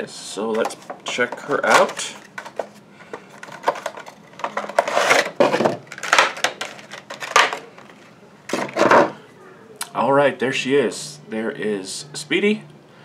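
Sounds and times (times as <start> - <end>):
clicks scrapes and rustles of packaging: 0.5 - 9.0.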